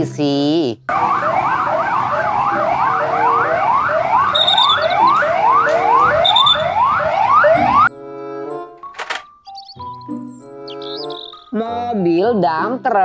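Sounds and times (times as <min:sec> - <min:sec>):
police siren yelping: 0:00.9 - 0:07.9, 0:10.7 - 0:11.5
second siren: 0:00.9 - 0:07.9.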